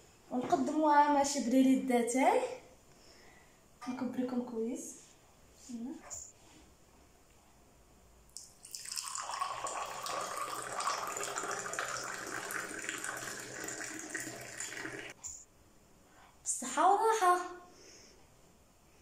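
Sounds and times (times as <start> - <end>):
tea pouring into glass: 8.4 - 15.2.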